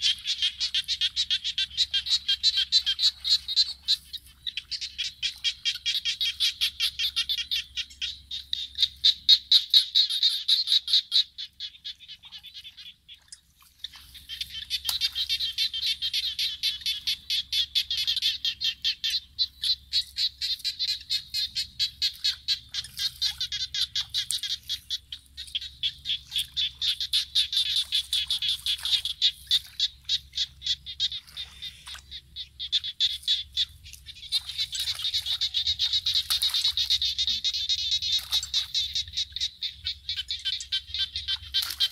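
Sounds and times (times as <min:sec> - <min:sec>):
frog-like calls chorus: 0:14.0 - 0:41.9.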